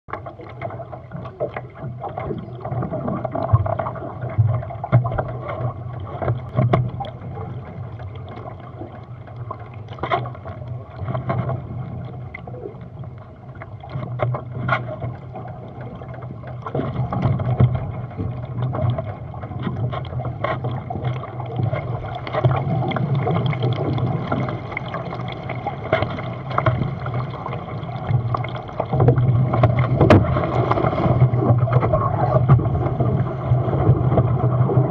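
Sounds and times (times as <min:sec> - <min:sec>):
water splashing along hull: 0:00.1 - 0:34.9
knocks through hull: 0:28.9 - 0:32.8.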